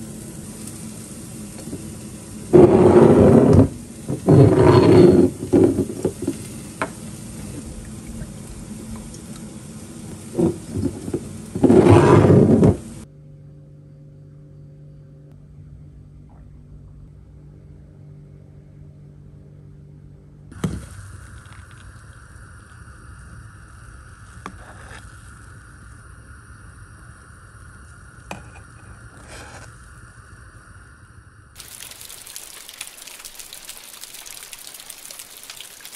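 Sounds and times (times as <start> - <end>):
steady hiss: 0.0 - 13.1, 20.5 - 35.9
low hum with faint tones: 0.0 - 32.3
noisy scrape: 2.5 - 6.4, 10.2 - 13.0, 28.3 - 29.8.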